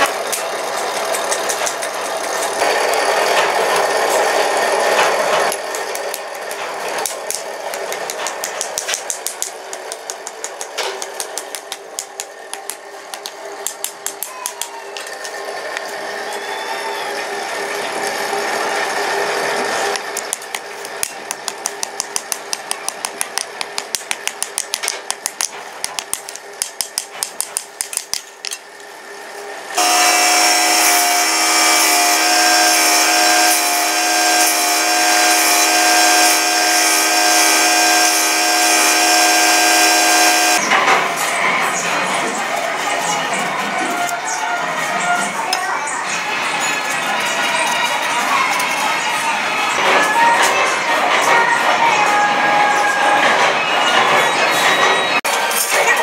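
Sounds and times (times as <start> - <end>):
steady machine hum: 0.0 - 14.1, 27.6 - 42.4.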